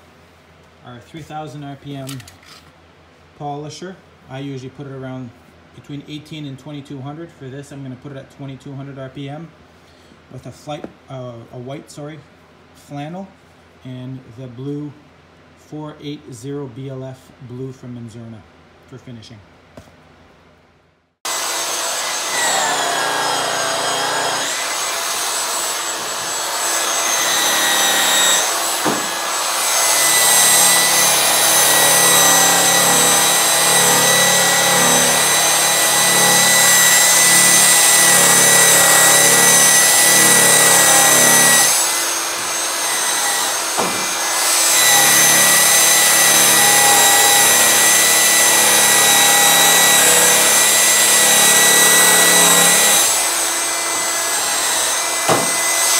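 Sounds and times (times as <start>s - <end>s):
polisher motor whine: 21.3s - 38.0s.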